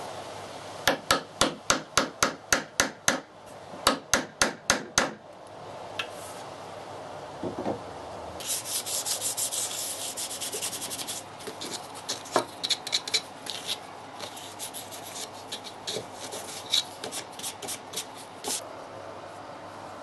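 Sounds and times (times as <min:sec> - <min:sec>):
sandpaper scratching on wood: 0:08.4 - 0:18.6.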